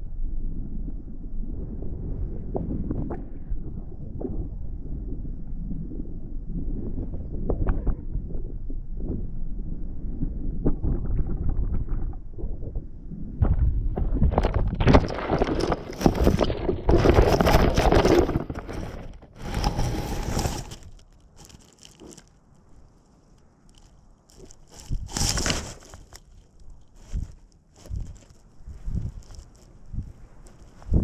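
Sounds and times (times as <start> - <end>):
wind rumbling on microphone: 0.0 - 31.0
payload scraping on ground: 14.4 - 31.0.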